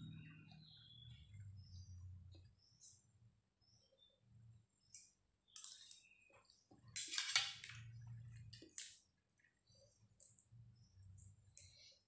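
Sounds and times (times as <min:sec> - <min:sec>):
cutlery scraping a metal tray: 0:07.0 - 0:07.7.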